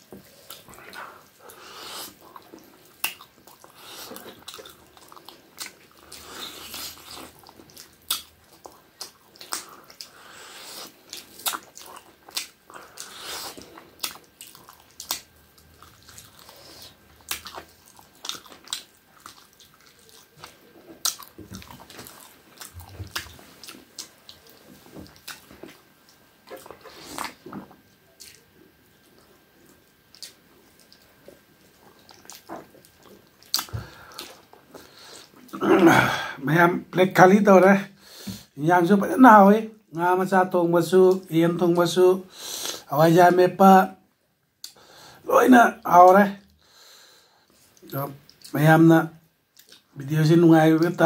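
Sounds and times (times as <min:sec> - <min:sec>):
person chewing: 0:00.1 - 0:35.6, 0:49.5 - 0:49.9.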